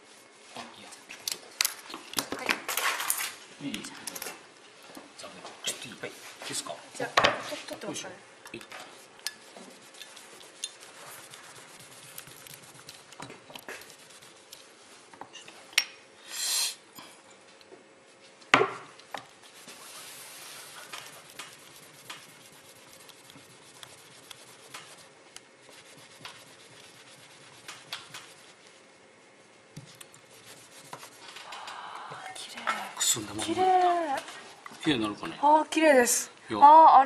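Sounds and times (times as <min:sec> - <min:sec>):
paper towel rubbing: 0:09.4 - 0:13.1, 0:13.7 - 0:15.0, 0:19.3 - 0:31.4.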